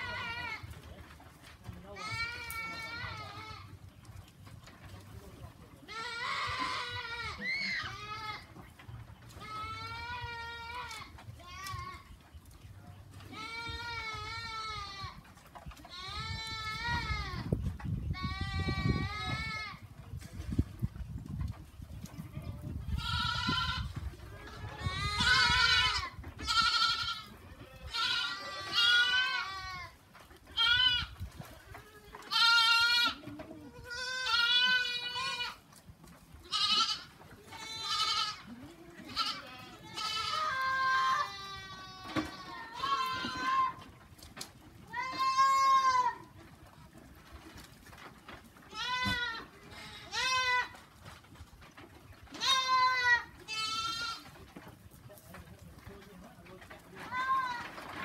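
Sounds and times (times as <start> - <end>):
goats bleating: 0.0 - 0.8, 2.0 - 4.0, 5.8 - 8.7, 9.3 - 12.2, 13.3 - 19.8, 22.1 - 35.7, 36.3 - 44.0, 44.8 - 46.4, 48.7 - 50.8, 52.3 - 54.4, 57.1 - 57.8.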